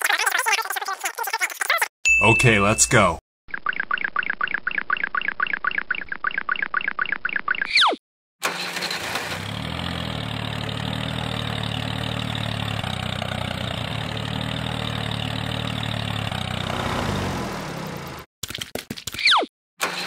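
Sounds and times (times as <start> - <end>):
tractor engine idling: 9.7 - 18.2.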